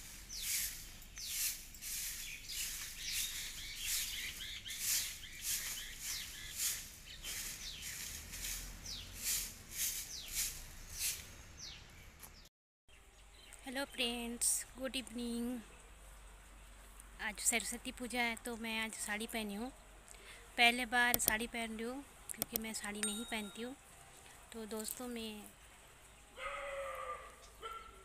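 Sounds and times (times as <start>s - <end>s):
broom sweeping dry leaves: 0.0s - 12.3s
birds chirping: 0.0s - 14.4s.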